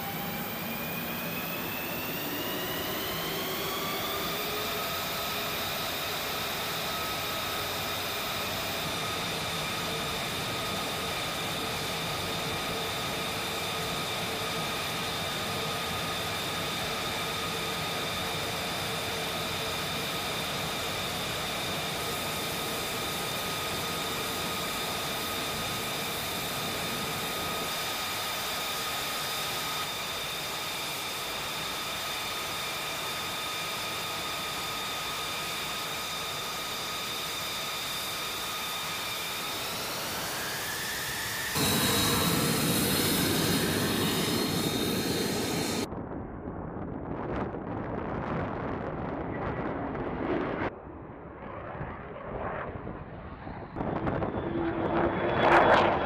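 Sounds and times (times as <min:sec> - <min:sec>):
jet engine whine: 0:00.0 - 0:56.0.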